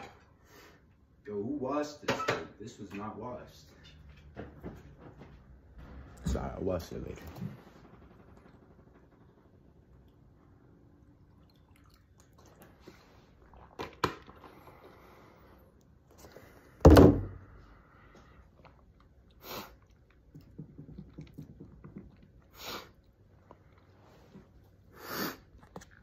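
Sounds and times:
man sipping and swallowing: 11.2s - 16.7s
loud thump: 16.8s - 17.4s.

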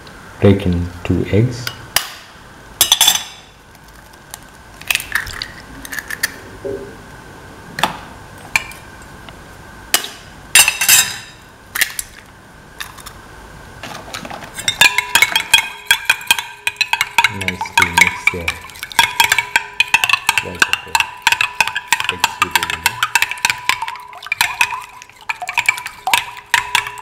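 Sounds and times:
eggs cracking against bowl: 3.7s - 6.4s, 14.6s - 27.0s
ladle beating eggs in bowl: 14.5s - 27.0s.

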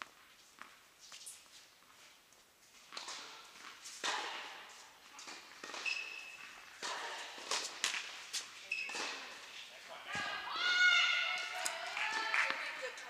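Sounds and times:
footsteps on court: 0.0s - 10.5s
tennis balls struck and bouncing: 2.9s - 10.4s
short high squeak: 5.8s - 6.4s.

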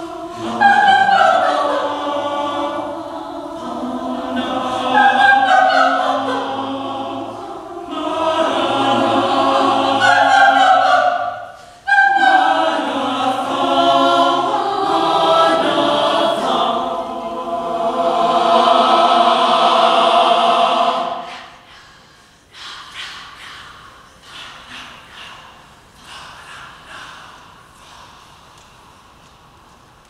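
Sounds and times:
choir singing a cappella: 0.0s - 28.5s.

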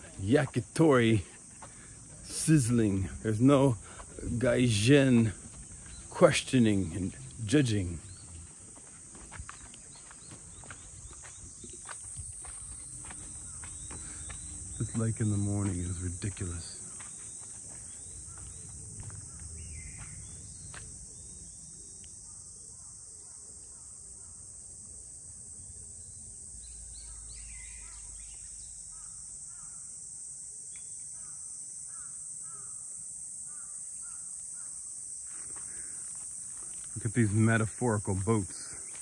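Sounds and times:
insects chorus: 0.0s - 39.0s
bird chirps: 17.9s - 21.4s, 26.6s - 29.7s.

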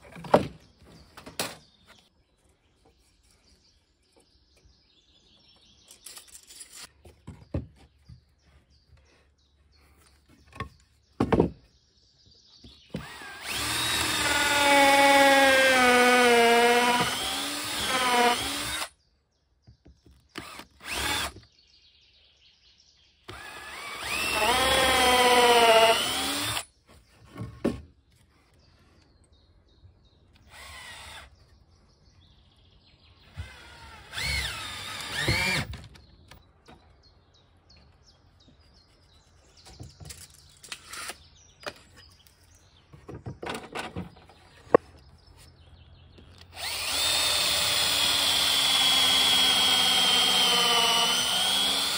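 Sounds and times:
cordless drill driving into wood: 12.9s - 18.9s, 20.3s - 21.4s, 23.3s - 26.7s, 30.4s - 31.3s, 33.3s - 36.0s, 46.4s - 51.9s.

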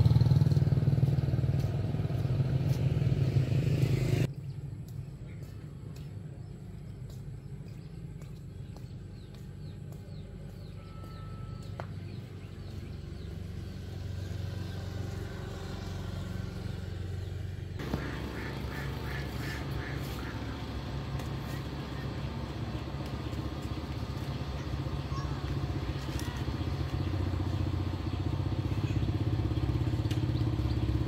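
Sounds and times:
low engine hum: 0.0s - 31.0s
broad noise: 17.8s - 26.5s.

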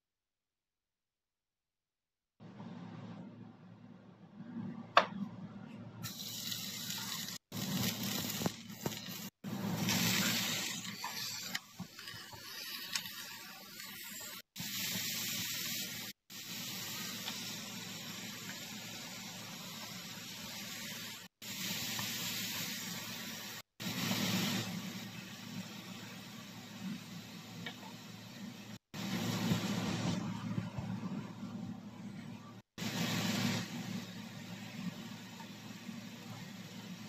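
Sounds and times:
food frying in oil: 6.0s - 30.0s
spatula stirring in pan: 6.9s - 15.8s.

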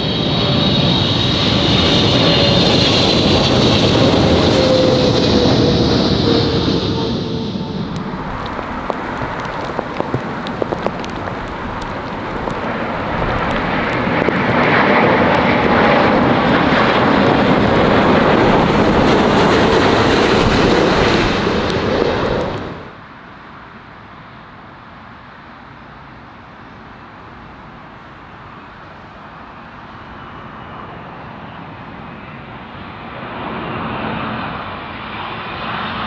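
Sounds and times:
jet engines passing overhead: 0.0s - 36.0s
quiet steady rush: 6.9s - 20.4s.

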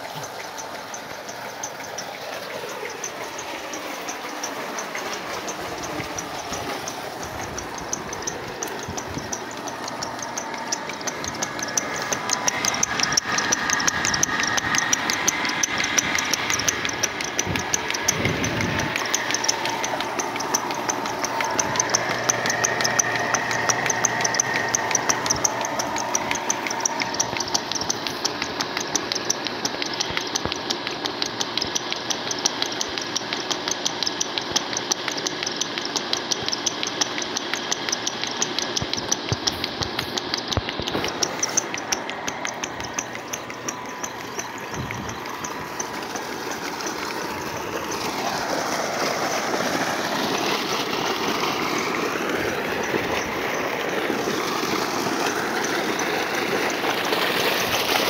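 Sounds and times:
electric motor pump whine and clatter: 0.0s - 58.0s
water gushing from pipe: 0.0s - 58.0s.

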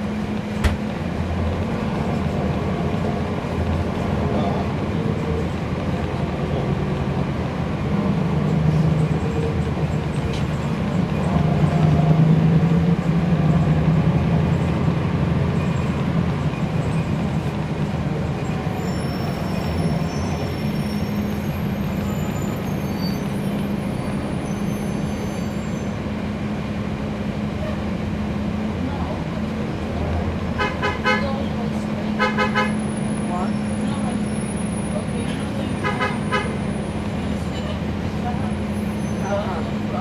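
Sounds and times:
bus diesel engine droning: 0.0s - 40.0s.

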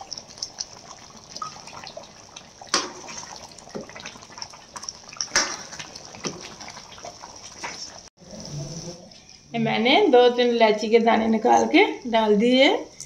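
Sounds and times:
ladle stirring sloshing gravy: 0.0s - 8.1s.

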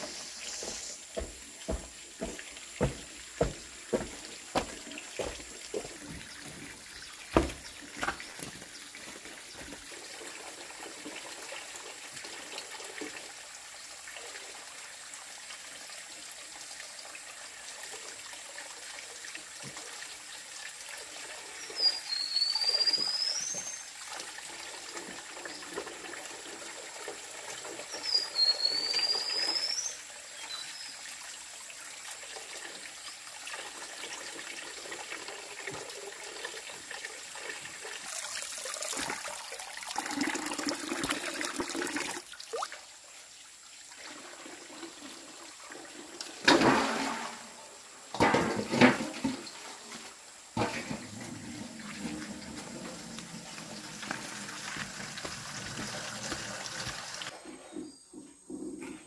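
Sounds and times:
stream water trickling: 0.0s - 48.2s, 49.2s - 57.4s
loud high whistled call: 21.8s - 23.8s, 28.0s - 30.0s.

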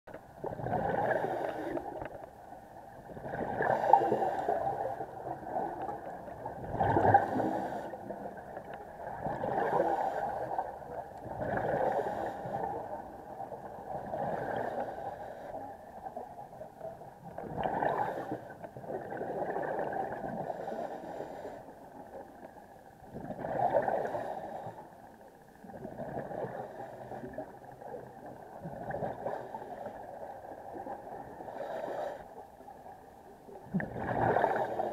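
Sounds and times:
diver breathing through regulator: 1.0s - 2.1s, 3.5s - 5.0s, 6.9s - 8.2s, 9.5s - 10.7s, 11.6s - 12.8s, 14.2s - 15.7s, 20.4s - 21.8s, 31.4s - 32.4s.

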